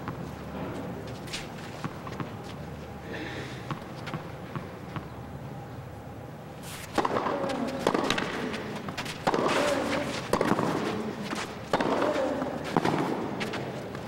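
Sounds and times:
low arena background sound: 0:00.0 - 0:14.0
racket striking tennis ball: 0:06.6 - 0:13.6.

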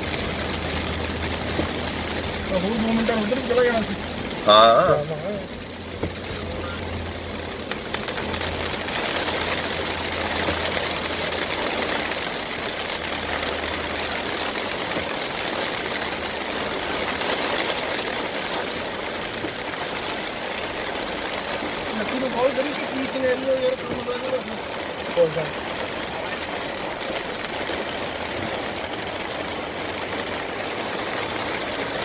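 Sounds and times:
heavy rain drumming on car roof: 0:00.0 - 0:32.0.

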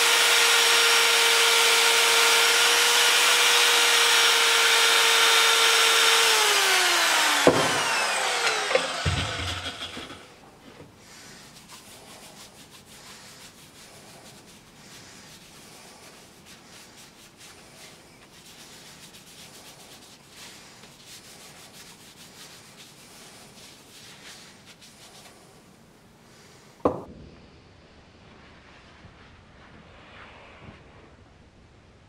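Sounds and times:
hand rubbing wooden cup: 0:07.8 - 0:27.1.

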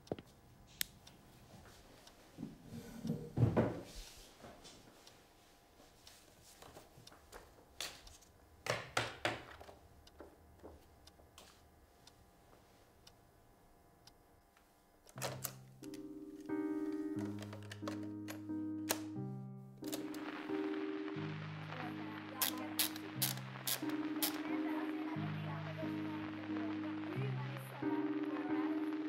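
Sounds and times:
music with low keyboard notes: 0:15.1 - 0:29.0.

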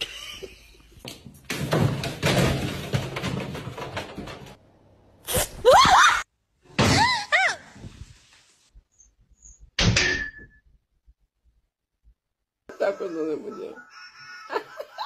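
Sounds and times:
crate knocking and scraping: 0:01.5 - 0:04.6.

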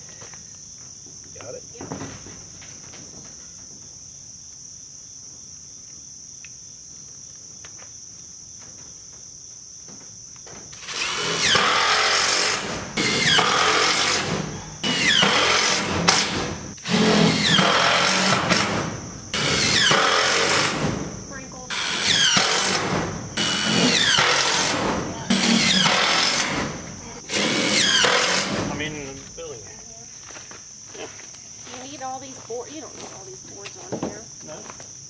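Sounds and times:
high insect drone: 0:00.0 - 0:35.0
drill driving screws into metal: 0:10.8 - 0:20.9, 0:21.7 - 0:28.7.

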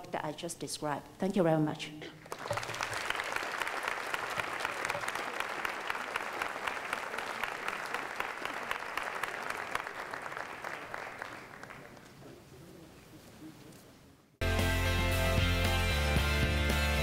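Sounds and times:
audience applauding: 0:02.2 - 0:12.2.

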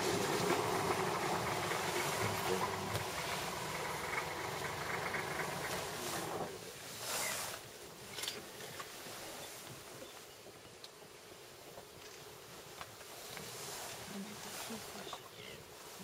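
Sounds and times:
vehicle engine running: 0:00.0 - 0:06.6.

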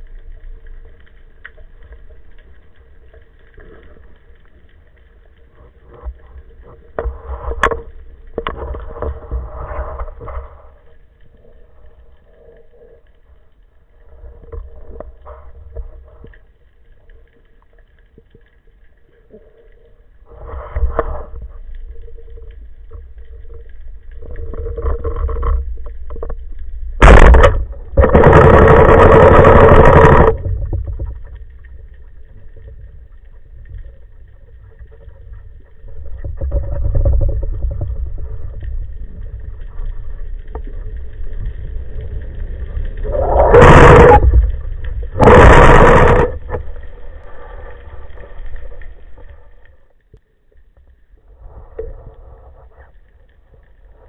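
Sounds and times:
muffled underwater swishes: 0:00.0 - 0:50.4
loud rushing water noise: 0:45.2 - 0:46.4.

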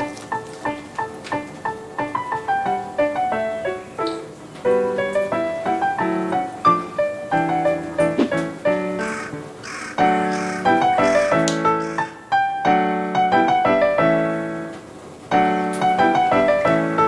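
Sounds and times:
piano melody: 0:00.0 - 0:17.0.

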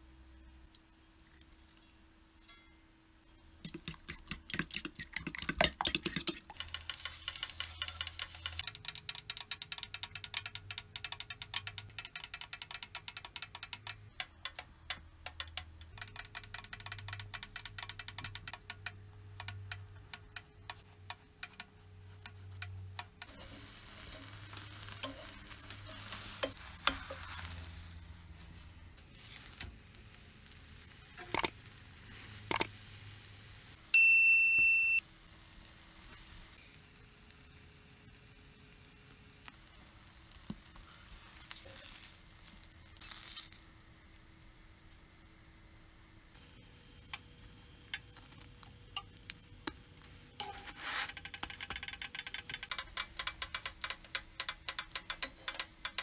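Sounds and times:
egg sizzling in pan: 0:03.6 - 0:12.4, 0:23.2 - 0:33.8, 0:35.1 - 0:56.0
fork beating eggs in bowl: 0:03.6 - 0:14.6
sharp clink: 0:34.0 - 0:35.0.

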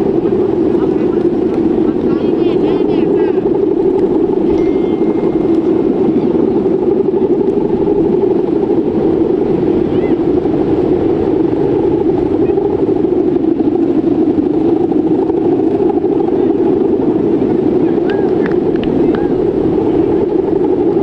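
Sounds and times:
kite hummer droning in wind: 0:00.0 - 0:21.0.

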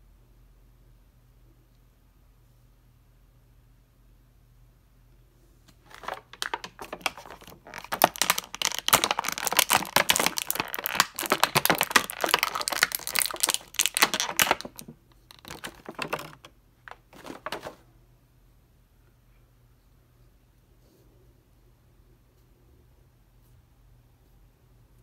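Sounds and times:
plastic bag crinkling: 0:05.8 - 0:17.8.

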